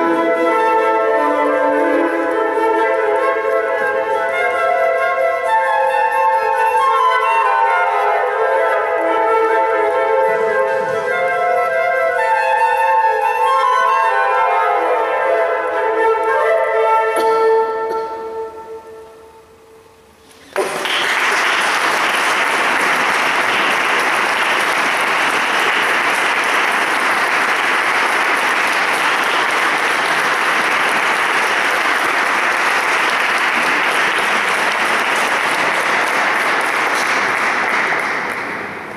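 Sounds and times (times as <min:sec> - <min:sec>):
flute note: 0:00.0 - 0:19.6
audience applauding: 0:20.3 - 0:38.9.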